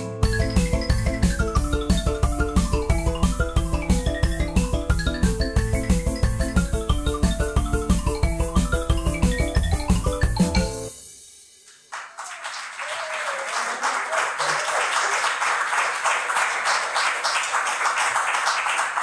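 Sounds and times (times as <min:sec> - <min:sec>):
marimba notes ringing: 0:00.0 - 0:11.0
audience applause: 0:11.9 - 0:19.0.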